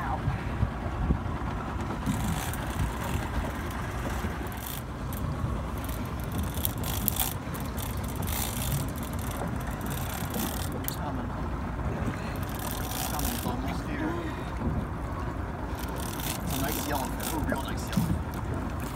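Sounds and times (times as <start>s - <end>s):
low rumble of wind and water: 0.0s - 18.9s
light clicks and rattles: 2.0s - 11.2s, 15.7s - 18.9s.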